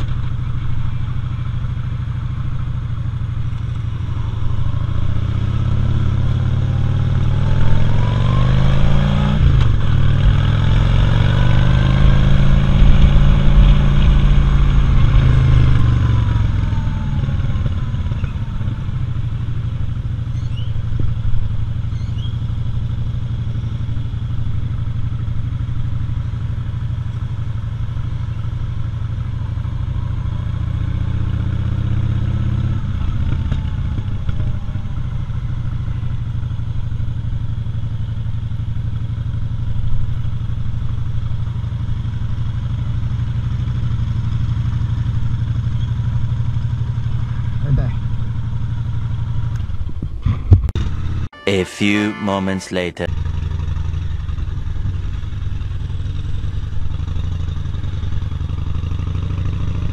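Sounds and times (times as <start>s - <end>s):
motorcycle engine rumbling: 0.0s - 8.6s, 9.4s - 30.4s, 53.1s - 59.8s.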